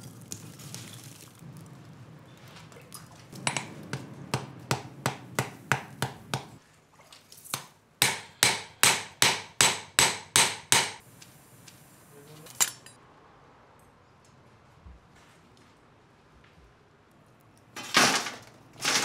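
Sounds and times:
hammer striking steel on anvil: 0:03.4 - 0:06.6, 0:08.0 - 0:11.0.

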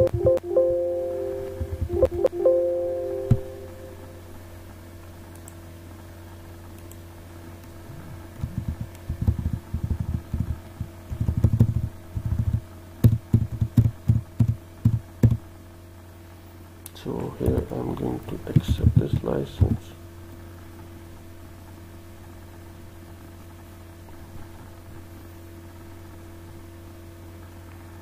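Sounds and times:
keyboard keys thumping: 0:00.0 - 0:04.3, 0:08.4 - 0:15.4, 0:18.5 - 0:19.8
low electrical hum: 0:00.0 - 0:28.0.

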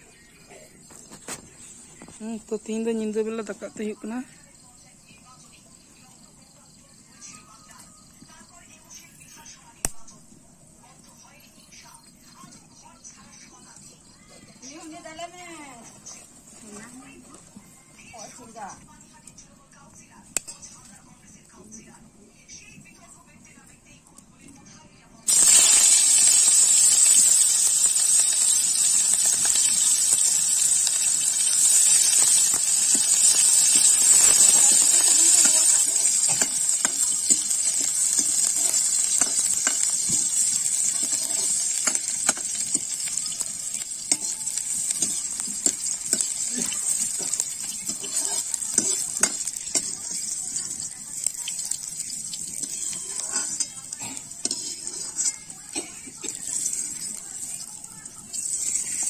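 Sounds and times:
onions sizzling in hot oil: 0:00.0 - 0:19.2, 0:25.3 - 0:59.0
metal ladle scraping wok: 0:25.3 - 0:59.0.

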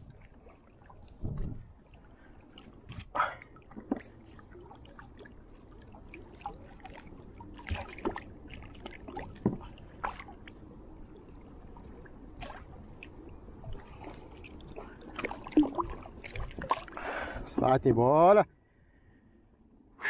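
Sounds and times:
water lapping against kayak: 0:00.0 - 0:19.3
small splashes: 0:02.2 - 0:10.6, 0:11.8 - 0:17.7.

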